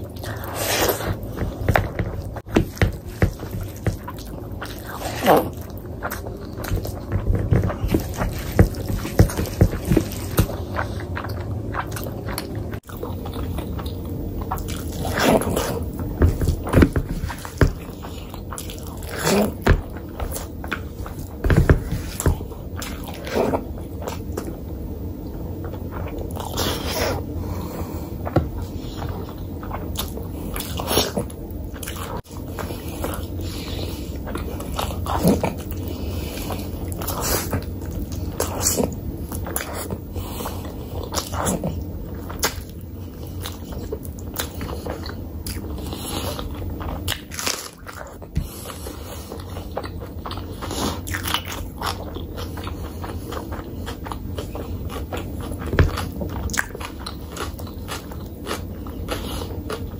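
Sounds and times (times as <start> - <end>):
wet chewing and lip-smacking: 28.2 - 59.9.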